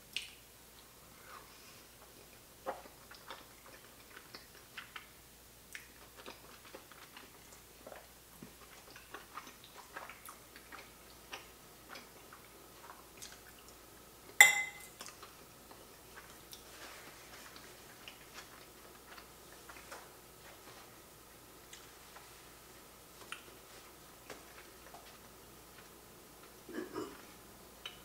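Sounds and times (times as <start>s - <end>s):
wet chewing: 2.1s - 13.8s, 15.0s - 20.8s, 23.1s - 26.6s
fork clinking on plate: 14.4s - 14.9s.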